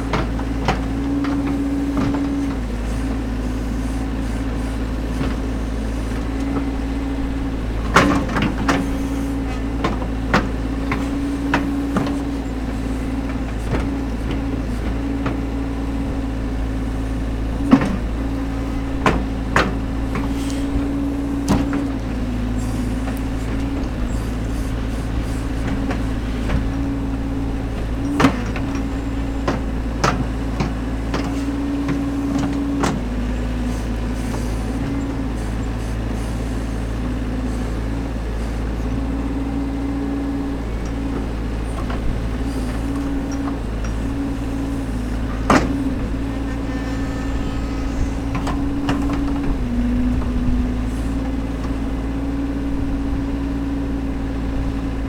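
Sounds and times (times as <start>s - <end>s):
diesel engine running: 0.0s - 55.0s.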